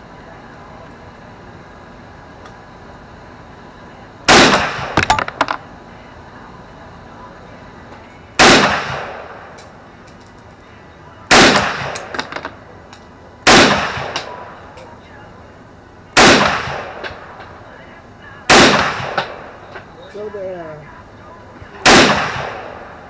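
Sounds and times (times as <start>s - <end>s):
rifle shots: 4.3s - 5.6s, 8.4s - 9.4s, 11.3s - 12.4s, 13.5s - 14.3s, 16.2s - 17.1s, 18.5s - 19.5s, 21.8s - 22.9s.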